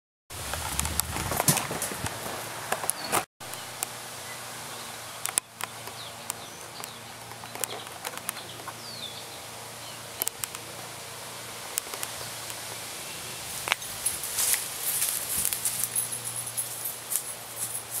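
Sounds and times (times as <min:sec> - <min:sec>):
steady hiss: 0:01.8 - 0:18.0
sharp clicks: 0:05.2 - 0:08.7, 0:10.2 - 0:10.6.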